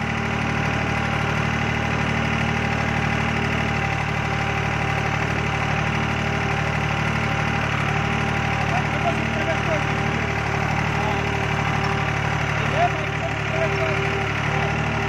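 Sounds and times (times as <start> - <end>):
tractor diesel engine at high revs: 0.0 - 15.0.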